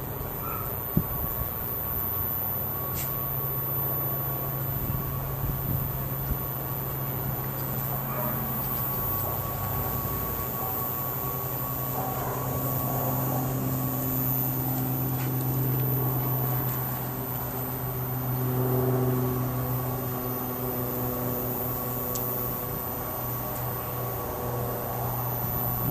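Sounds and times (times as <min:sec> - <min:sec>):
low mechanical hum: 0:00.0 - 0:25.9
held tones: 0:00.6 - 0:18.6.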